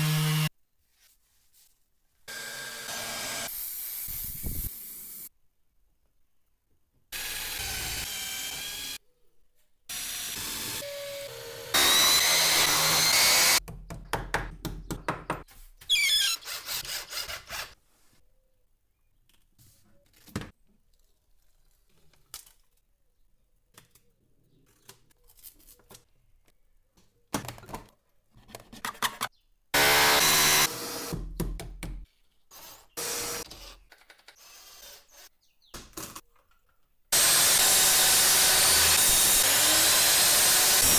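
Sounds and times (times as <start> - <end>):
power drill whining: 9.9 - 13.6, 37.2 - 40.9
boards and parts knocking: 13.6 - 15.5, 31.2 - 32.1.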